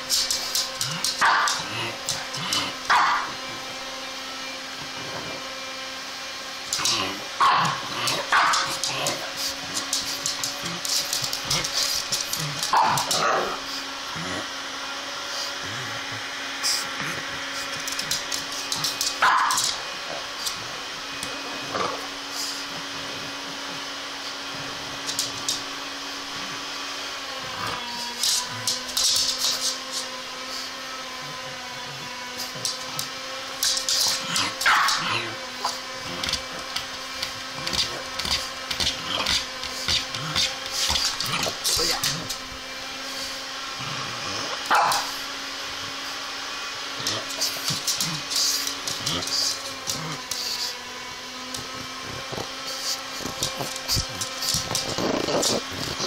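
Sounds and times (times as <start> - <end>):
dog snorting and scuffling: 7.8 - 13.6, 32.4 - 42.4, 47.0 - 50.8, 51.5 - 56.0
dog scratching wooden bed: 51.5 - 56.0.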